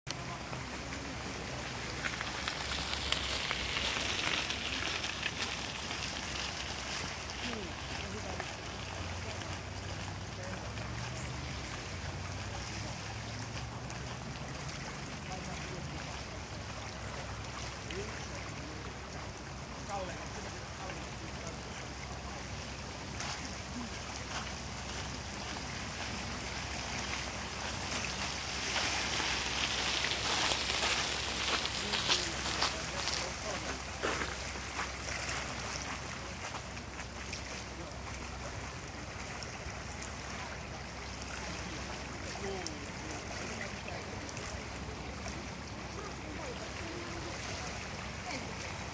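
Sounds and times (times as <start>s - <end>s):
small waves lapping on rock: 0.1s - 48.9s.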